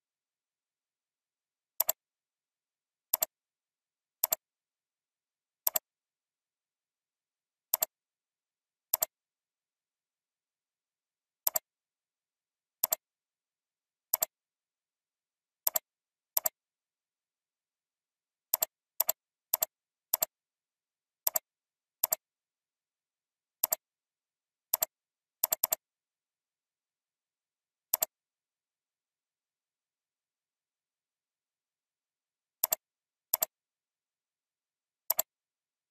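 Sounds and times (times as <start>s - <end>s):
computer mouse clicks: 1.8s - 2.0s, 3.1s - 3.4s, 4.2s - 4.4s, 5.6s - 5.9s, 7.7s - 8.0s, 8.9s - 9.2s, 11.4s - 11.7s, 12.8s - 13.0s, 14.1s - 14.4s, 15.6s - 16.6s, 18.5s - 20.4s, 21.2s - 22.3s, 23.6s - 23.9s, 24.7s - 25.8s, 27.9s - 28.2s, 32.6s - 33.6s, 35.0s - 35.4s.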